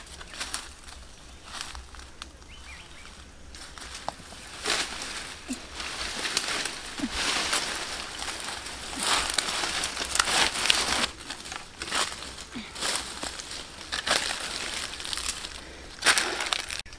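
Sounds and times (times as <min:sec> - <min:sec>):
dry leaves rustling and crackling: 0:00.0 - 0:16.9
twig snapping: 0:03.6 - 0:16.9.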